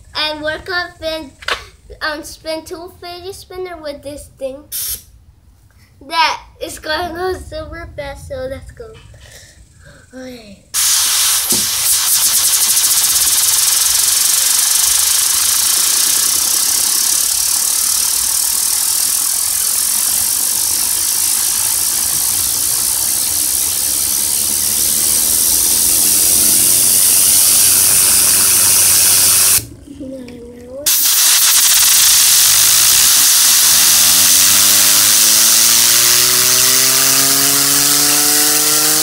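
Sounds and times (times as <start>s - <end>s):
compressed air hissing: 4.7s - 5.1s, 10.8s - 29.7s, 30.9s - 39.0s
low hum: 6.8s - 10.8s, 12.4s - 39.0s.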